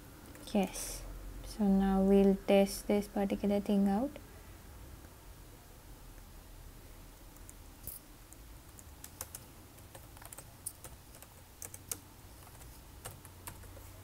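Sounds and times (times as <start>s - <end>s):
computer keyboard keystrokes: 8.7s - 13.8s.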